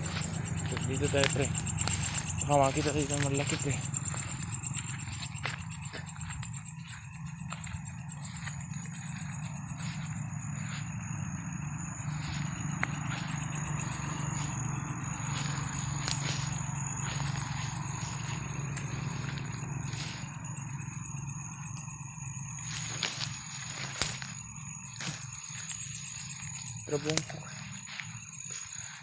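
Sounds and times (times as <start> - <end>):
light clicks of brushed leaves: 0.0 - 11.2, 12.0 - 20.9, 22.5 - 29.0
leaves rustling: 0.0 - 11.3, 22.6 - 29.0
night insects calling: 0.0 - 29.0.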